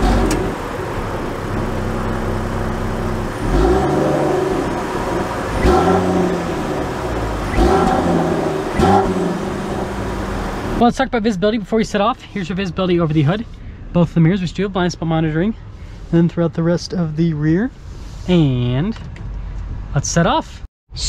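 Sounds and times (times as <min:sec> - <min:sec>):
car engine idling and revving: 0:00.0 - 0:11.0.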